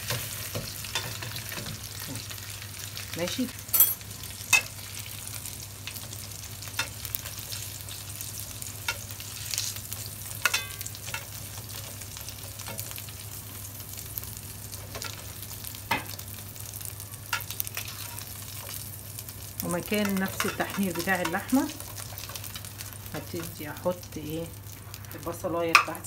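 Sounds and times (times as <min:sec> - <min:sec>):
meat sizzling in a pan: 0:00.0 - 0:26.0
tongs clinking against pan: 0:03.7 - 0:04.7, 0:10.4 - 0:11.3.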